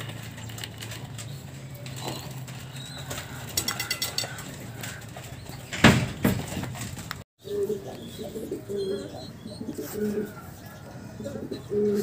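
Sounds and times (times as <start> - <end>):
pigeons cooing: 0.1 - 12.0
loud knocks: 5.7 - 7.1.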